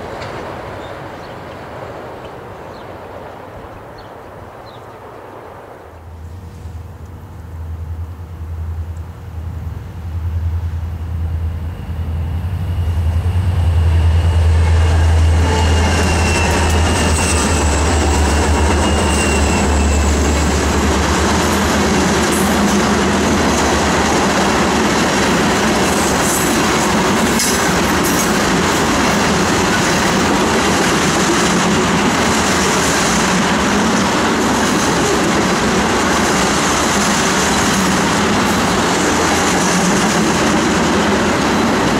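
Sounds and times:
train wheels on rails: 0:00.0 - 0:05.1, 0:06.2 - 0:41.9
diesel locomotive engine drone: 0:06.0 - 0:41.9
faint high wheel squeal: 0:11.6 - 0:20.5
train cars clanking: 0:13.8 - 0:41.9.

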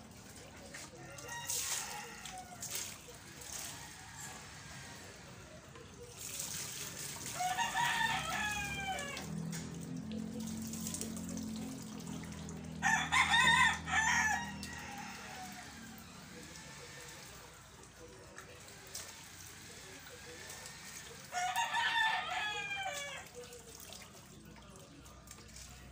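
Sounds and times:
rooster crowing: 0:00.9 - 0:02.8, 0:07.3 - 0:09.4, 0:12.8 - 0:17.0, 0:21.3 - 0:23.3.

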